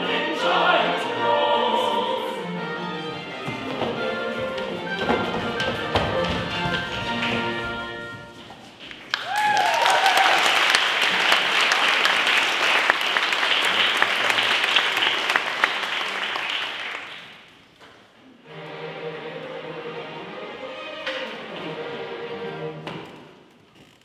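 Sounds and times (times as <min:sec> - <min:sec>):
instrumental music: 0:00.0 - 0:08.8
audience applauding: 0:08.7 - 0:17.5.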